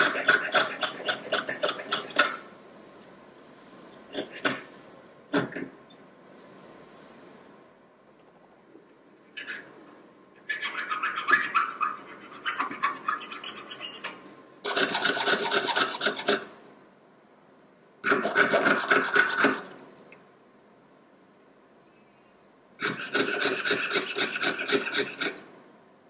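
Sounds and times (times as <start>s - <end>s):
saw rasping through metal: 10.8s - 16.4s, 22.8s - 25.4s.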